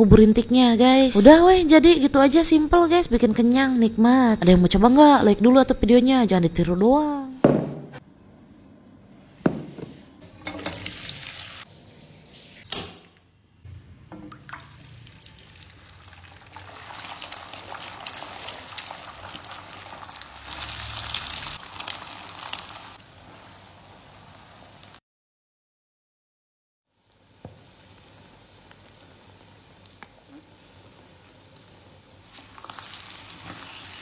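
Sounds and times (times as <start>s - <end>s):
eggs sizzling in oil: 10.5s - 11.7s, 14.4s - 25.0s, 26.9s - 34.0s.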